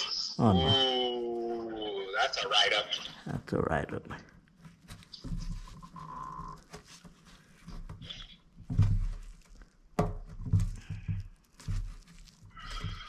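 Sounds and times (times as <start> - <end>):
dull handling thumps: 6.7 - 13.0.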